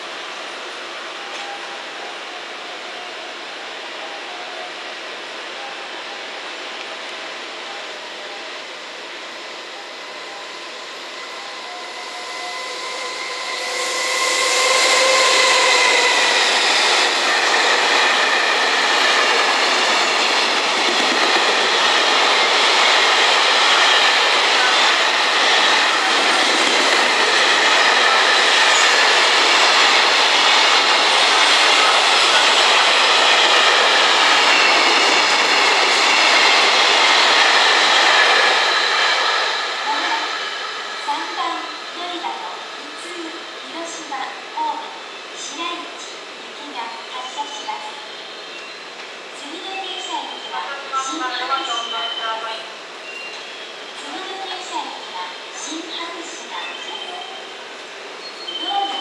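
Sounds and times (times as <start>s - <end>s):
electric locomotive whine: 0.0s - 59.0s
train wagons rolling on rails: 10.0s - 41.0s.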